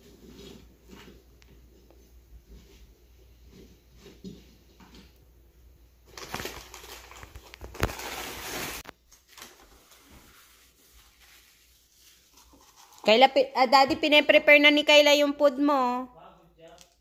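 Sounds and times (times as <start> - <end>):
food packaging handling: 6.0 - 13.0
paper bag rustling and crinkling: 6.0 - 13.1.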